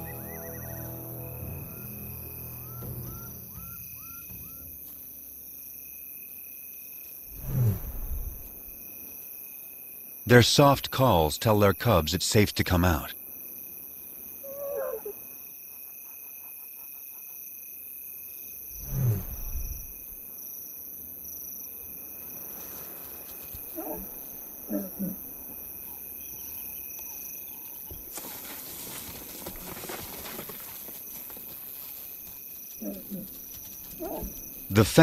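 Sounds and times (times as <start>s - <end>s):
night insects chorus: 0.0s - 35.0s
lion low moaning calls: 14.4s - 15.2s, 24.7s - 25.2s
soft rustle: 22.3s - 24.2s, 27.7s - 34.6s.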